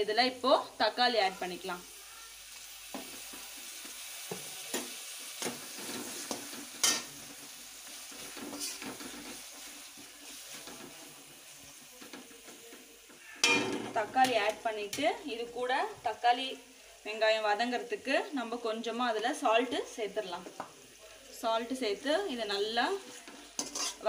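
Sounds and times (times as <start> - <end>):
vegetables sizzling in oil: 0.0 - 24.0
spatula scraping and tapping pan: 2.9 - 7.2, 8.1 - 11.0, 23.0 - 24.0.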